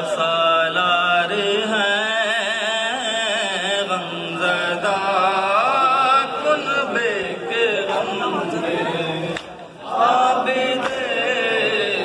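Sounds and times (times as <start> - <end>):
man singing into a microphone: 0.0 - 9.4.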